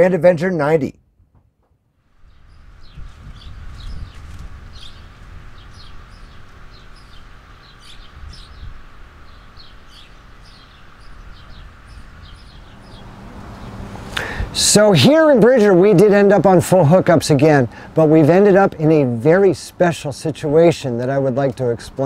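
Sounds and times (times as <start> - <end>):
low outdoor rumble: 2.0 - 22.0
small birds chirping: 2.2 - 14.5.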